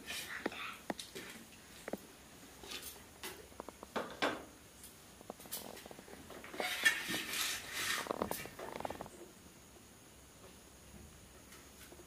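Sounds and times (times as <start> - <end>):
rustling scraping: 5.3 - 9.2.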